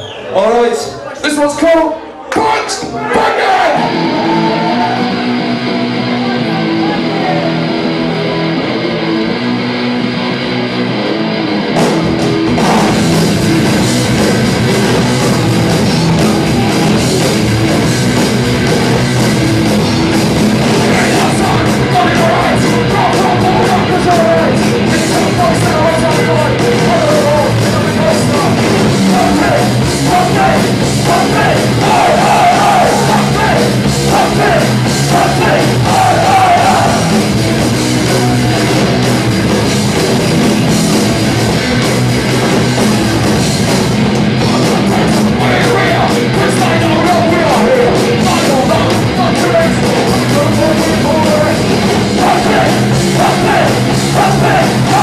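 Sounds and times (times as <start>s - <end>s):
shouted vocals: 2.2s - 7.6s, 20.8s - 37.3s, 44.8s - 55.0s
punk band playing live: 2.4s - 55.0s
drums crashing: 11.5s - 55.0s.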